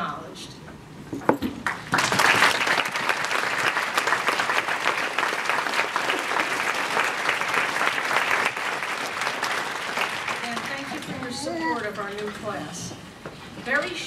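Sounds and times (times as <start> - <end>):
large audience applauding: 1.6 - 12.1.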